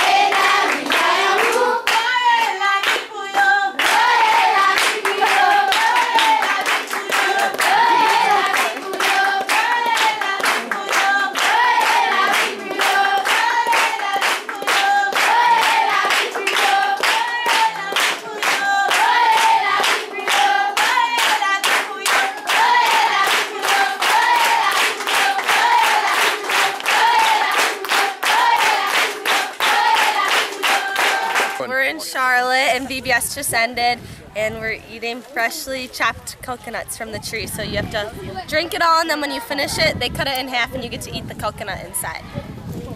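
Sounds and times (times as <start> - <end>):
hands clapping in time: 0.0 - 31.7
children and adults singing: 0.0 - 31.8.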